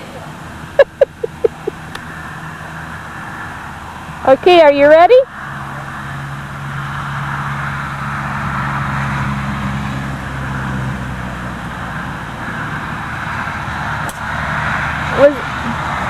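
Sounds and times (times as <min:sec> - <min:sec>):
steady traffic roar: 0:00.0 - 0:16.0
vehicle engine low hum: 0:00.0 - 0:16.0
golf club striking ball: 0:14.0 - 0:14.4.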